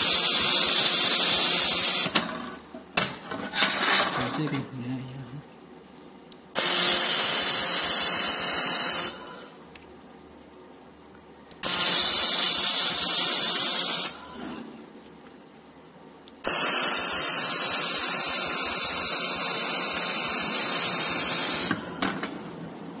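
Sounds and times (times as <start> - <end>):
laser welder hissing: 0.0 - 2.6, 6.6 - 9.6, 11.6 - 14.7, 16.4 - 22.2.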